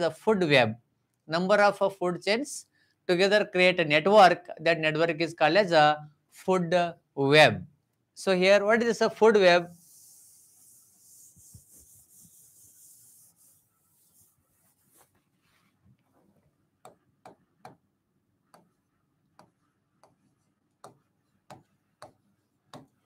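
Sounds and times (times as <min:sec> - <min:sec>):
eraser rubbing on a board: 0:09.6 - 0:15.8
pen tapping on a board: 0:16.8 - 0:17.8, 0:18.5 - 0:20.2, 0:20.8 - 0:23.0.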